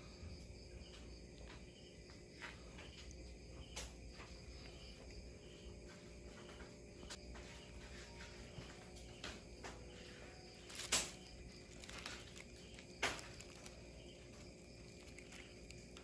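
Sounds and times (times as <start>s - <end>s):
crickets chirping: 0.0s - 16.0s.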